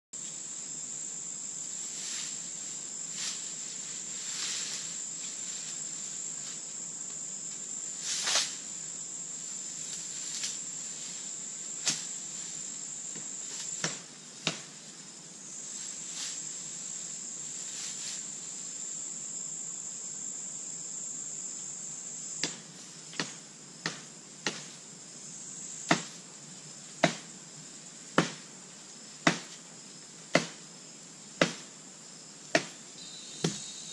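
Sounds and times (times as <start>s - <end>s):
chopping strikes into wood: 13.8s - 14.7s, 22.4s - 24.7s, 25.9s - 26.2s, 27.0s - 27.3s, 28.2s - 28.5s, 29.2s - 29.6s, 30.3s - 30.6s, 31.4s - 31.7s, 32.5s - 32.8s
high-pitched insect drone: 32.0s - 33.9s.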